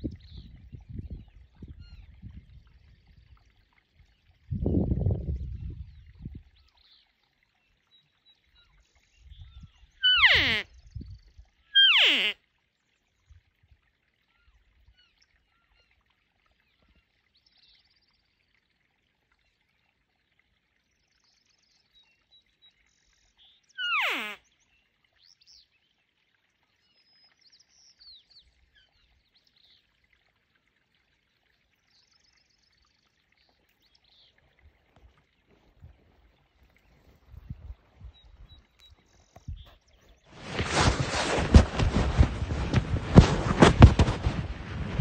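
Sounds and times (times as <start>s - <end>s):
faint bird chirps: 7.9s - 12.4s, 21.2s - 25.8s
elk mew calls: 10.0s - 10.6s, 11.8s - 12.4s.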